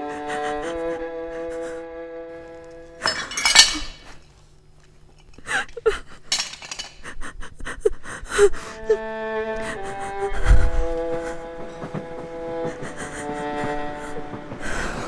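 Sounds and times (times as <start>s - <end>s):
crash with clinking: 3.0s - 4.2s, 6.3s - 7.0s.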